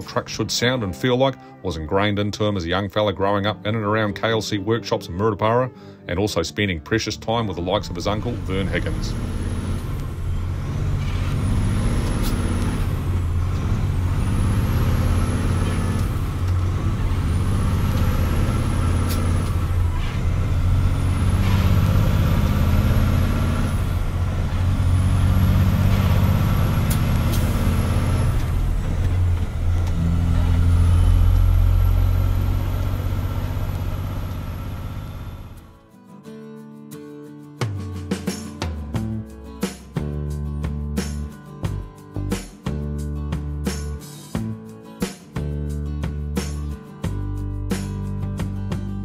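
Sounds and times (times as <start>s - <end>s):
diesel truck engine changing gears: 6.7s - 35.8s.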